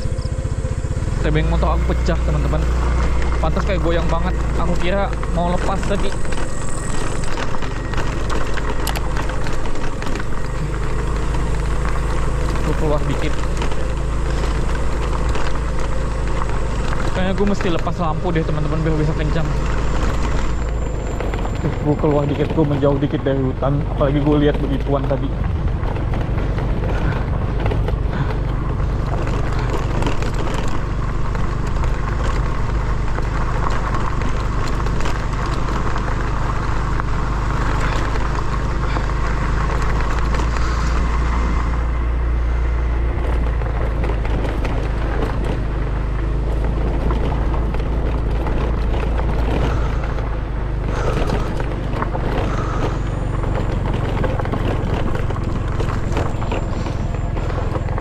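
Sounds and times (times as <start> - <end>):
knocks and rattles over bumps: 0.0 - 58.0
motorcycle engine running: 0.0 - 58.0.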